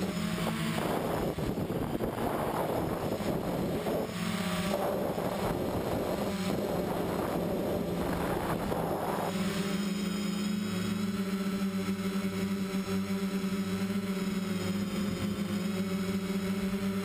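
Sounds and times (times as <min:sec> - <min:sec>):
wind rushing over microphone: 0:00.0 - 0:09.6
drone propellers whirring: 0:00.0 - 0:17.0.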